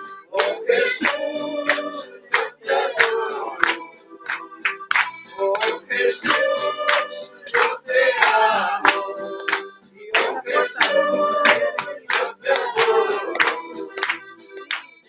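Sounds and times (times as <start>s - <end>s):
group singing a worship song: 0.3s - 14.3s
people clapping along: 0.3s - 15.0s.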